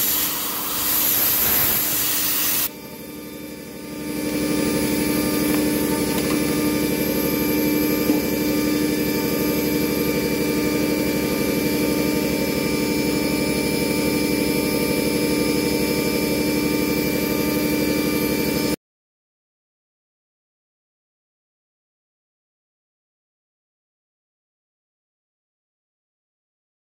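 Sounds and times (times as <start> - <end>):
engraving spindle whining: 0.0 - 18.7.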